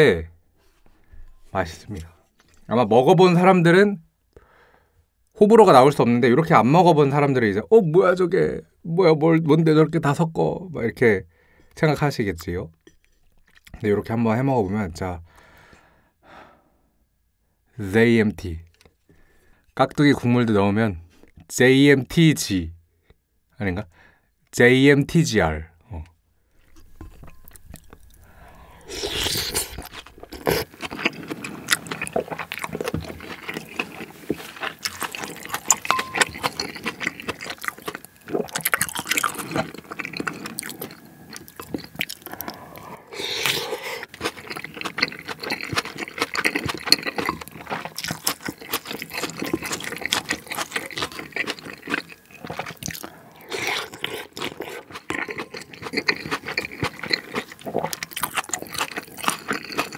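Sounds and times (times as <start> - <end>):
wet chewing and crunching: 26.6 - 59.9
chopsticks scraping ceramic bowl: 29.0 - 42.1.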